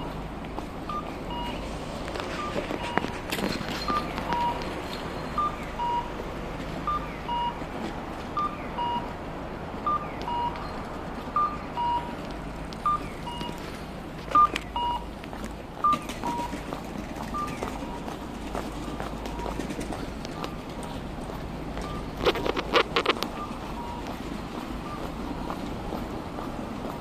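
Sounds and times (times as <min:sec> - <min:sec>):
street traffic: 0:00.0 - 0:27.0
crossing signal electronic beeps: 0:00.9 - 0:01.7, 0:02.3 - 0:06.2, 0:06.8 - 0:07.6, 0:08.4 - 0:09.1, 0:09.8 - 0:12.2, 0:12.8 - 0:13.6, 0:14.3 - 0:15.1, 0:15.8 - 0:16.6, 0:17.3 - 0:18.2, 0:18.8 - 0:20.7, 0:21.8 - 0:25.5.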